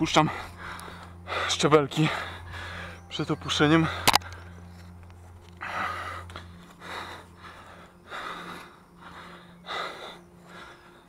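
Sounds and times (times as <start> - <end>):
man breathing hard: 0.2 - 3.1, 3.8 - 11.0.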